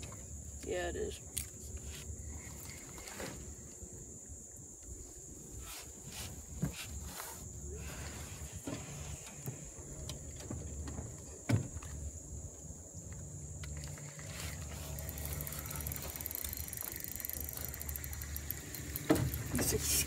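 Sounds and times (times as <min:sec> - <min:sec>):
steady low hum: 0:00.0 - 0:20.0
fishing reel ticking: 0:13.7 - 0:20.0.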